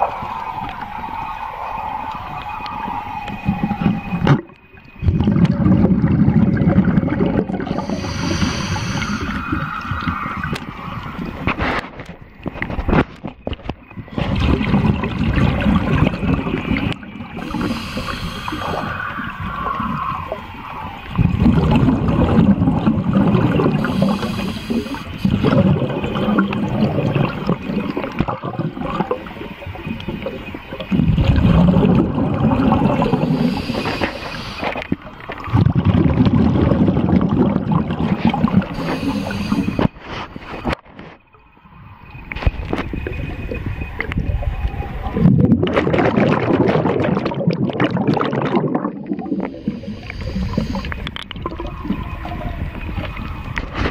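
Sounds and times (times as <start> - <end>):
gurgling exhaust bubbles: 3.6 - 11.8, 14.0 - 40.0, 42.3 - 53.9
regulator inhale hiss: 7.7 - 9.8, 17.4 - 19.2, 23.7 - 25.6, 33.0 - 35.0, 38.7 - 40.0, 49.3 - 51.2.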